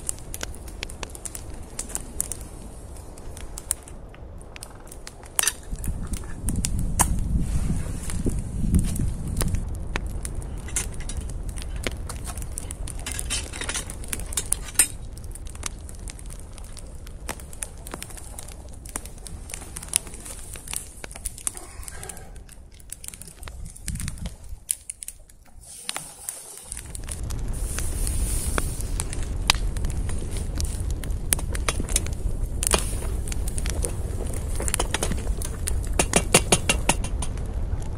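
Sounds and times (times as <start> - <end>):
campfire crackling and popping: 0.0 - 37.9
low rumble of flames: 0.0 - 37.9.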